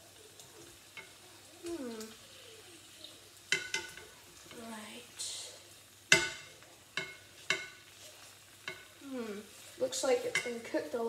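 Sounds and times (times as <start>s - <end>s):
utensil clinking on frying pan: 3.5s - 4.1s, 6.1s - 7.8s, 10.2s - 10.8s.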